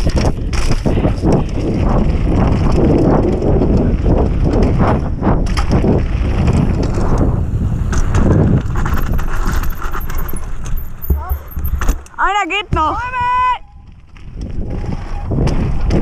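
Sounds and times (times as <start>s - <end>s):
bike knocking and rattling: 0.0s - 16.0s
bike tyres on gravel: 0.0s - 16.0s
wind buffeting microphone: 0.0s - 16.0s.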